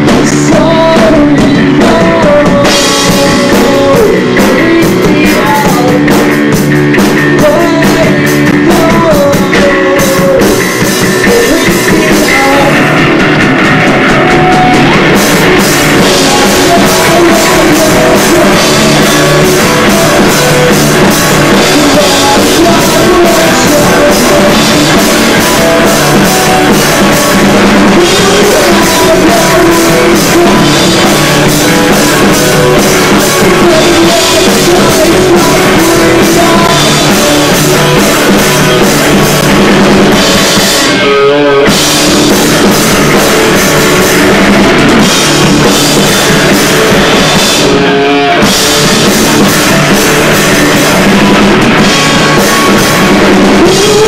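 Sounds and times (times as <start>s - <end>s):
drum kit playing: 0.0s - 54.0s
electric guitar: 0.0s - 54.0s
person singing: 0.0s - 54.0s.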